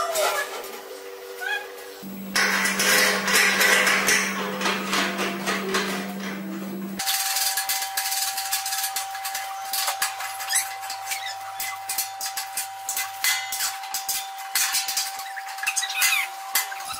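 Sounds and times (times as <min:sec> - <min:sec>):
steady background tone: 0:02.0 - 0:07.0.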